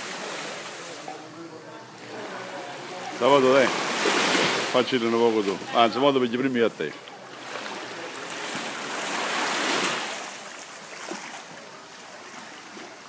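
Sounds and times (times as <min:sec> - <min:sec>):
sea water washing on rocks: 0:03.2 - 0:13.0.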